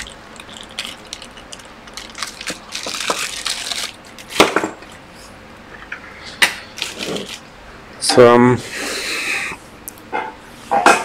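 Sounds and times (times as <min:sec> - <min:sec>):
plastic bag crinkling: 0:00.0 - 0:04.6, 0:06.8 - 0:07.5.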